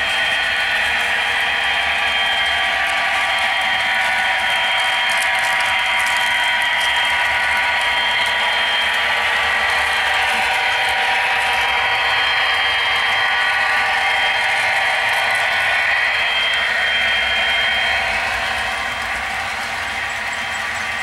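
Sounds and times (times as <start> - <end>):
model locomotive motor whine: 0.0 - 21.0
wheels clicking over rail joints: 17.9 - 21.0.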